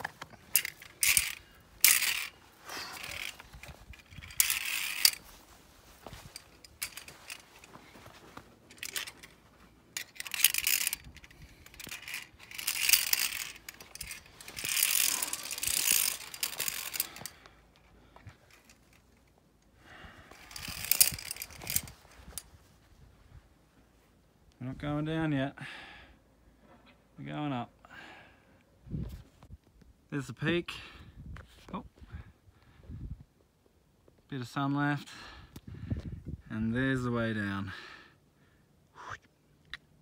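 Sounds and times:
metal carabiners clinking: 0.0s - 19.4s, 20.3s - 22.5s.

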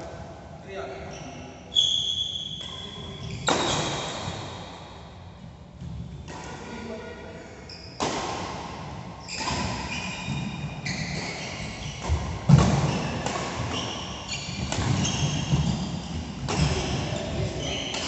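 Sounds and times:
shoes squeaking: 9.2s - 18.0s
rackets striking shuttlecock: 12.0s - 18.0s.

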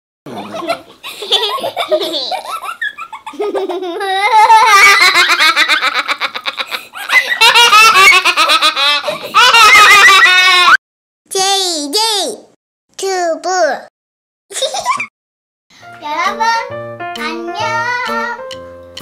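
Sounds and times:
young child laughing: 0.3s - 10.8s, 14.5s - 15.1s.

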